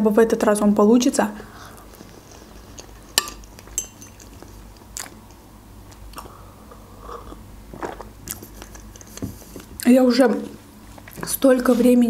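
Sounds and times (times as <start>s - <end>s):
chewing food: 1.8s - 6.4s, 7.2s - 9.9s
metal fork clinking on plate: 3.1s - 4.5s.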